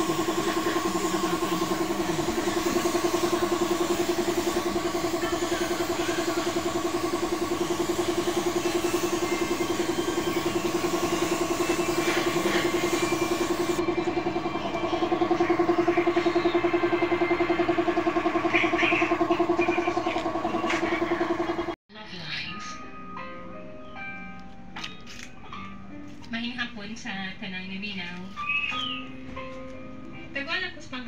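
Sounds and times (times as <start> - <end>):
spray gun hissing: 0.0 - 13.8
air compressor throbbing: 0.0 - 21.8.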